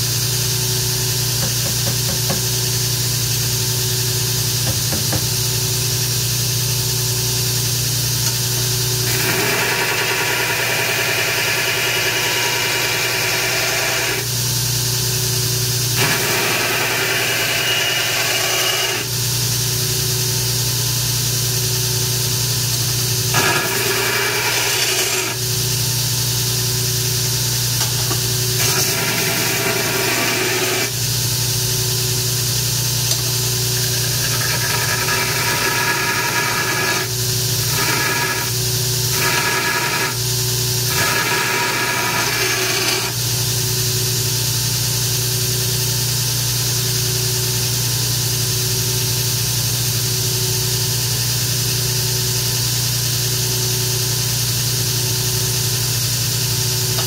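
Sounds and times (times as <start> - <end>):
belt grinder running: 0.7 - 45.5, 54.1 - 57.0
steel blade grinding on belt: 23.3 - 25.4, 27.8 - 31.0, 33.8 - 40.2, 40.9 - 43.2.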